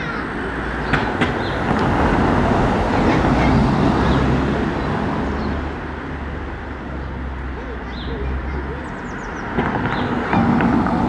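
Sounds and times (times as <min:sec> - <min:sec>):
vehicle passing by: 0:00.3 - 0:11.0.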